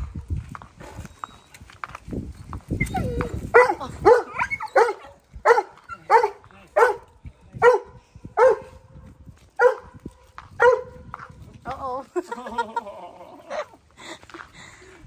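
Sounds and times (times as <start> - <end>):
dog barking: 3.5 - 8.8, 9.6 - 10.0, 10.6 - 11.0.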